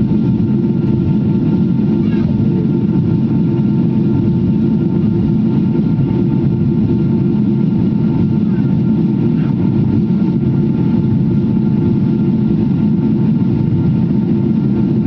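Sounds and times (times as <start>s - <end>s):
faint steady whine: 0.0s - 15.0s
jet cabin engine rumble: 0.0s - 15.0s.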